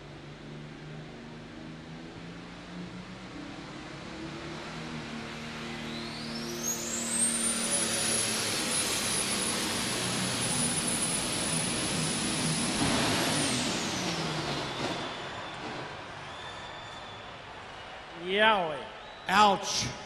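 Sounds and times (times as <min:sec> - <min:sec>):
pulling tractor turbocharger whine: 0:02.8 - 0:17.1.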